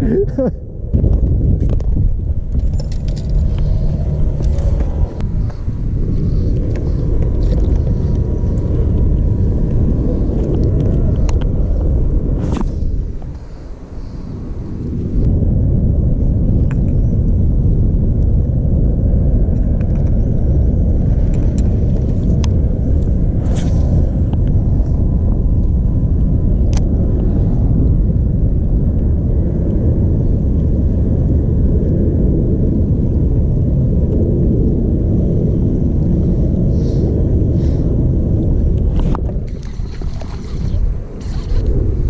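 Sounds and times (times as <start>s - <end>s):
wind buffeting microphone: 0.0s - 42.0s.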